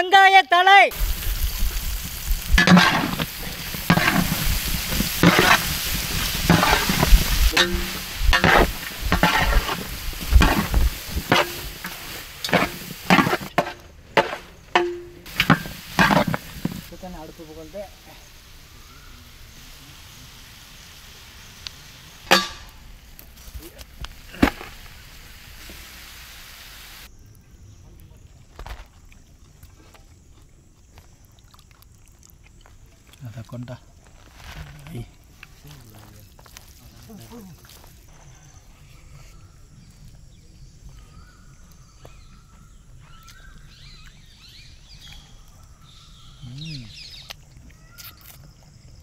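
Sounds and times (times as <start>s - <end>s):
steady low hiss: 0.9s - 28.2s
sharp knocks: 6.5s - 16.8s
birds chirping and whistling: 38.1s - 48.2s.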